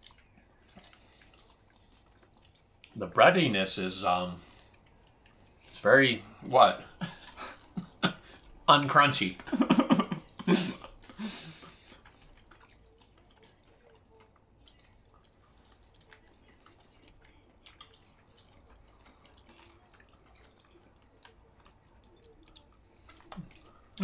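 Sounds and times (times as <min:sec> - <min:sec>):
wet eating clicks and smacks: 0:00.0 - 0:03.2, 0:04.0 - 0:24.0.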